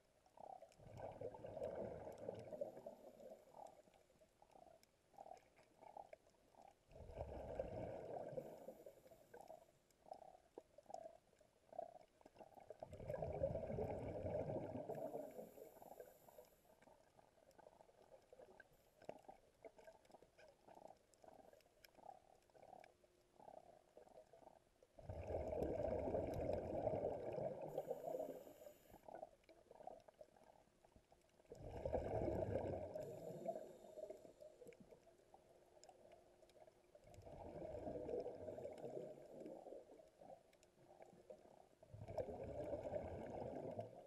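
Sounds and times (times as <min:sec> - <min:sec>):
diver exhaling bubbles: 0:06.9 - 0:08.8, 0:12.9 - 0:15.6, 0:25.0 - 0:28.6, 0:31.6 - 0:34.2, 0:42.0 - 0:44.0
small bubbles popping: 0:09.3 - 0:15.3, 0:17.6 - 0:27.8, 0:31.5 - 0:33.3.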